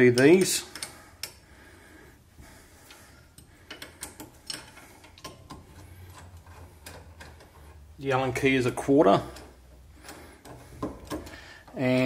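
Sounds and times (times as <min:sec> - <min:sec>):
hex key clicking on bolts: 0:00.2 - 0:01.4, 0:03.4 - 0:07.6.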